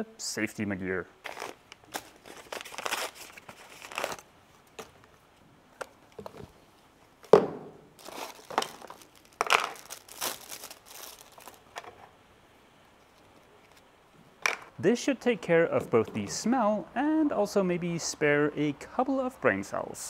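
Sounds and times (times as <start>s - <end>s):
plastic wrapping crinkling and tearing: 1.2s - 4.8s, 7.9s - 12.0s
sharp knock: 7.3s - 7.8s.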